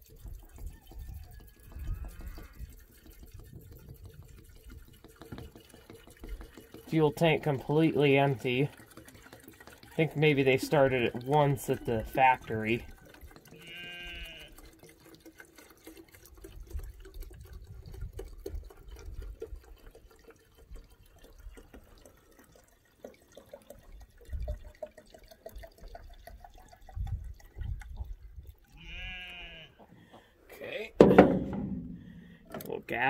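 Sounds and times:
fuel trickling into tank: 0:00.0 - 0:33.0
farm animal bleating: 0:01.8 - 0:02.7, 0:13.5 - 0:14.6, 0:28.7 - 0:29.9.

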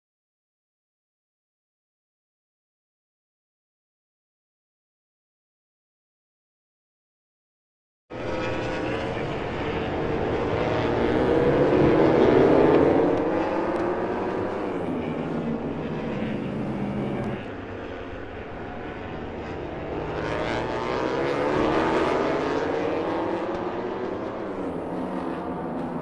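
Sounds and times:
racing motorcycle engines at high revs: 0:08.2 - 0:26.0.

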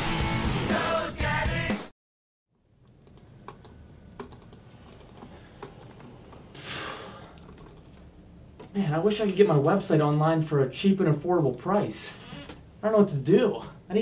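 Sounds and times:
music: 0:00.0 - 0:01.9
fingers tapping laptop keyboard: 0:03.1 - 0:06.1, 0:07.2 - 0:08.0.

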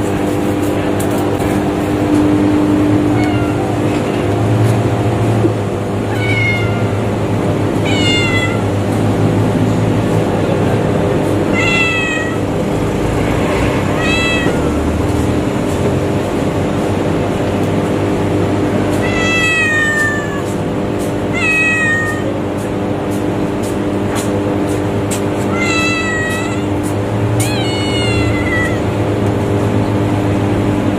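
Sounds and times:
cat meowing: 0:02.8 - 0:04.3, 0:06.0 - 0:08.9, 0:11.5 - 0:13.1, 0:13.8 - 0:14.9, 0:18.9 - 0:20.6, 0:21.2 - 0:22.4, 0:25.4 - 0:29.2.

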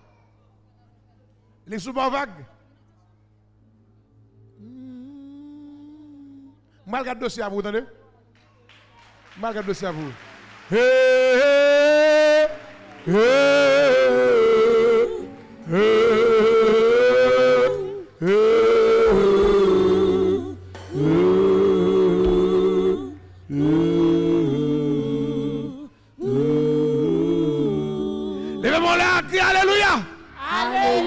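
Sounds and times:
man singing with vibrato: 0:10.7 - 0:31.0.

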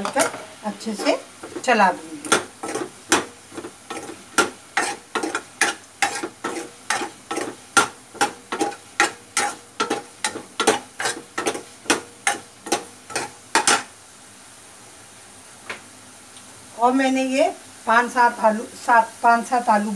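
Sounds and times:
metal ladle scraping a pan: 0:00.0 - 0:13.9.

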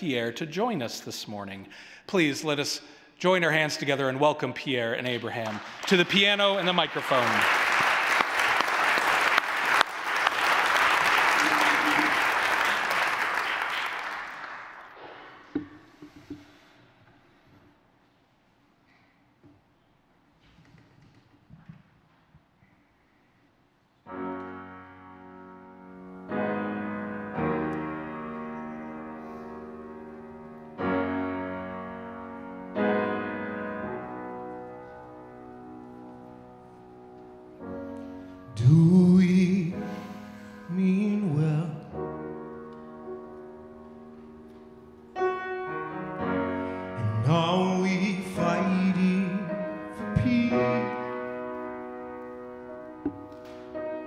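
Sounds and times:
grand piano chords: 0:24.0 - 0:54.0
man singing wordless lines: 0:38.5 - 0:42.1, 0:47.0 - 0:51.2.

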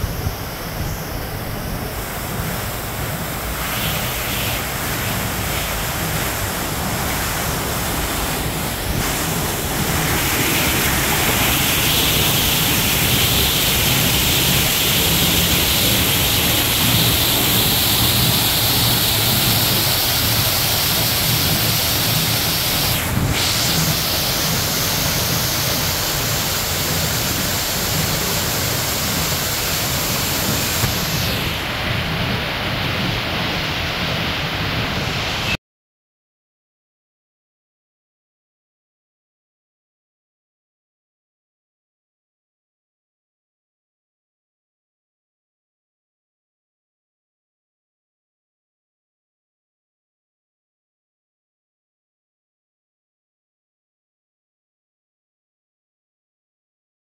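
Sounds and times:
water falling and splashing: 0:00.0 - 0:35.6.

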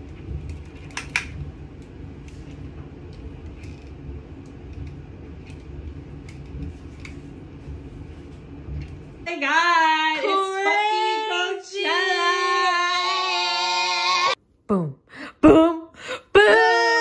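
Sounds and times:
low steady rumble: 0:00.0 - 0:13.4
woman singing long sliding notes: 0:09.3 - 0:17.0.

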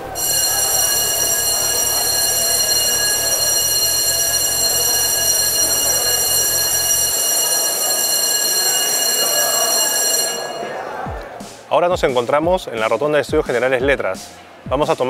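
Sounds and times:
electric bell buzzing: 0:00.0 - 0:10.8
students' noise: 0:00.0 - 0:11.8.

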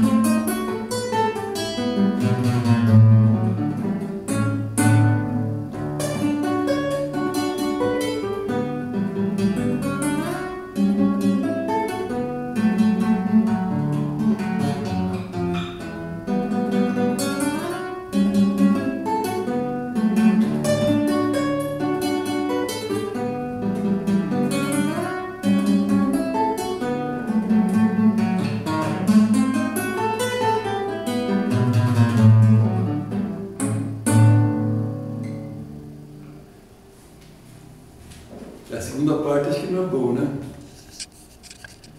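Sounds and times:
classical guitar melody: 0:00.0 - 0:41.9.

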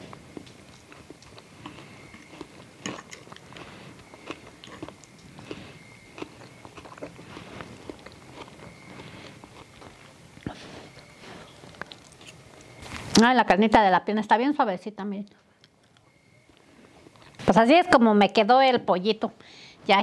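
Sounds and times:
person chewing: 0:00.0 - 0:12.8, 0:15.6 - 0:17.4.

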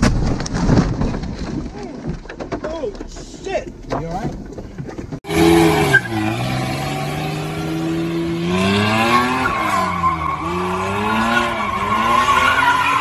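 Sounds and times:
car engine revving: 0:05.3 - 0:13.0.

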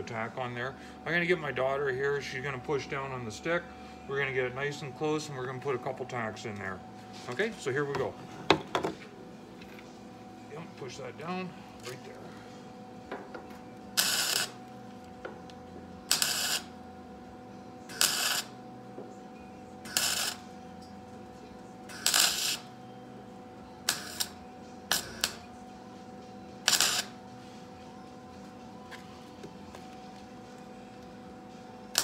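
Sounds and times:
welder crackling bursts: 0:14.0 - 0:14.6, 0:16.1 - 0:16.7, 0:17.9 - 0:18.5, 0:19.9 - 0:20.4, 0:21.9 - 0:22.6, 0:23.9 - 0:25.4, 0:26.7 - 0:27.1.

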